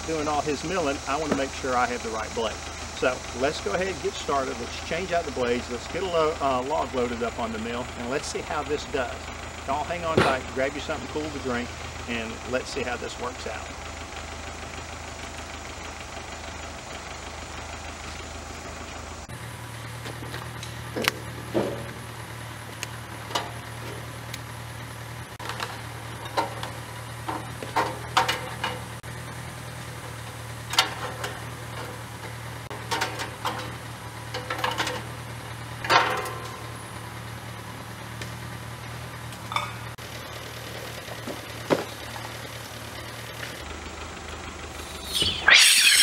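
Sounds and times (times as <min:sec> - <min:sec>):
metal clanks and clicks: 0:20.0 - 0:22.0, 0:22.8 - 0:24.4, 0:25.4 - 0:29.0, 0:30.6 - 0:35.2, 0:35.8 - 0:36.8.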